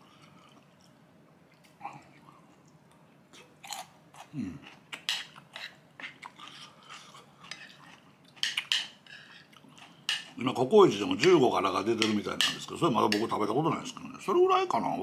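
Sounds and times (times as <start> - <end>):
man chewing with mouth clicks: 0.0 - 8.7
spoon against dish: 7.4 - 10.4, 11.2 - 13.4.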